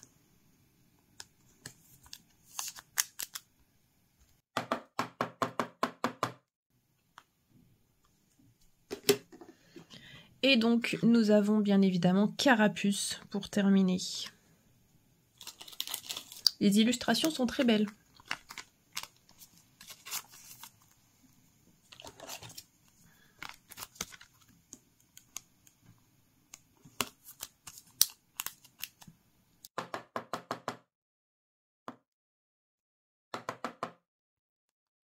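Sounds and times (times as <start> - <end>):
plastic sleeve crinkling: 1.6 - 3.5, 15.4 - 21.0, 21.8 - 25.8, 26.8 - 29.1.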